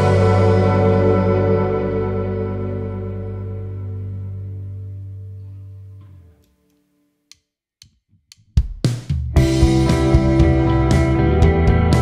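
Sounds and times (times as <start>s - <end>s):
electric guitars and bass chord: 0.0s - 6.4s, 9.3s - 12.0s
drumstick clicks: 6.4s - 9.2s.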